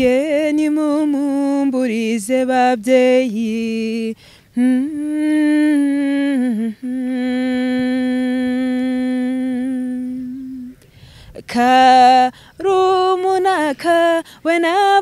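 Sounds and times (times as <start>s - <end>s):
woman singing unaccompanied: 0.0s - 15.0s.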